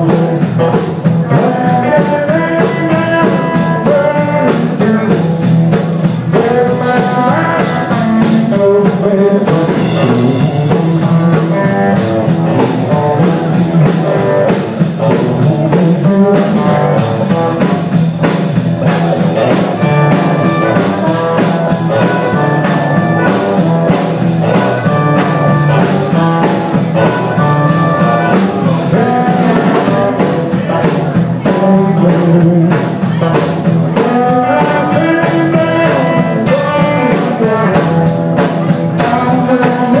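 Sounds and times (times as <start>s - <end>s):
drum kit: 0.0s - 40.0s
electric bass: 0.0s - 40.0s
electric guitar: 0.0s - 40.0s.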